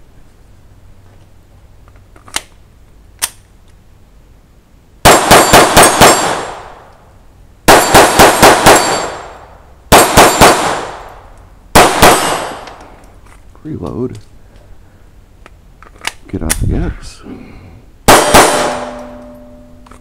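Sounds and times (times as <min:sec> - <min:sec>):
pistol clicks: 0:03.2 - 0:03.8
rapid pistol shots: 0:05.0 - 0:06.8, 0:07.6 - 0:11.0, 0:11.7 - 0:12.6, 0:18.0 - 0:19.2
steel targets ringing: 0:08.6 - 0:09.4, 0:18.1 - 0:19.8.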